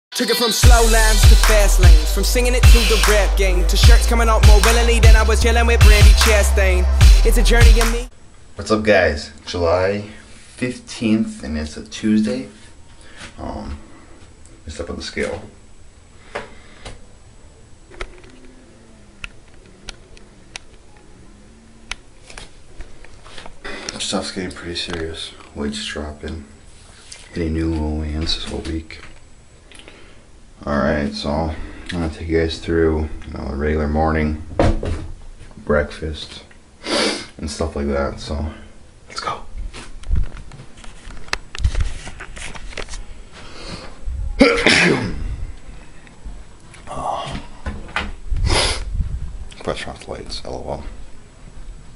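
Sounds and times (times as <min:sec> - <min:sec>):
man sneezing loudly: 0:44.4 - 0:45.3.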